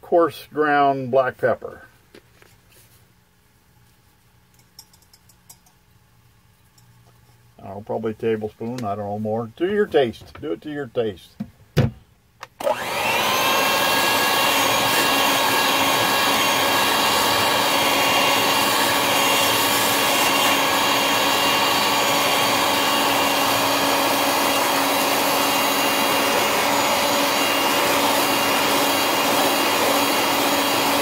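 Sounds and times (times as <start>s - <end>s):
electric whisk whirring: 12.6s - 31.0s.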